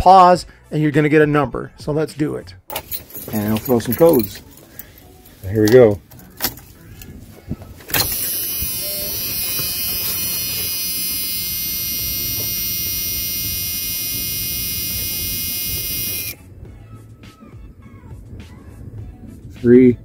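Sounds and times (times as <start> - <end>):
ignition key clicking: 7.8 - 16.4
dashboard warning buzzer: 8.0 - 16.4.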